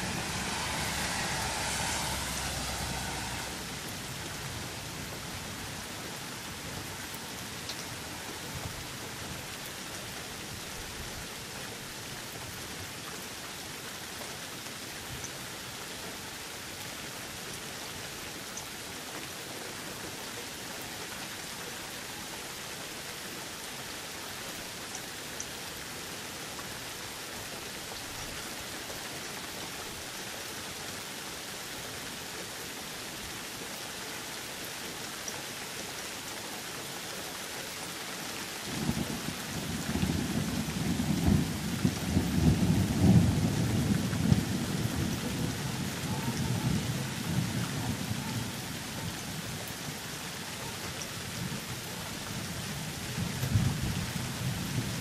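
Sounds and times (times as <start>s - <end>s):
thunder rumbling: 0.0s - 4.4s
steady rain falling: 0.0s - 55.0s.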